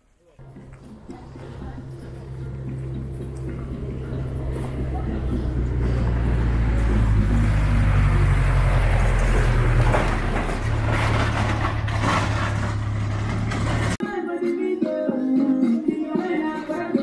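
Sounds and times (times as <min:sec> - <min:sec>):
guitar music: 0:00.4 - 0:08.6
truck engine passing by: 0:00.4 - 0:14.0.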